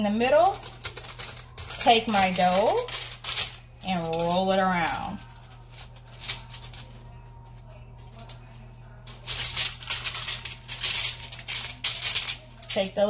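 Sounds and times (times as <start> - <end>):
aluminium foil crinkling: 0.0 - 13.0
steady low hum: 0.0 - 13.0.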